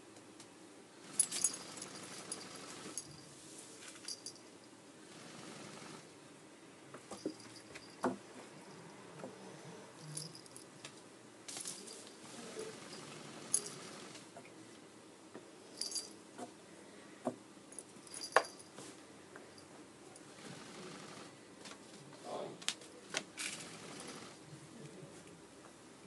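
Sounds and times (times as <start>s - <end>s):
light metallic jingles: 1.1s - 4.8s, 10.0s - 10.8s, 11.6s - 14.0s, 15.7s - 16.2s, 17.7s - 18.8s.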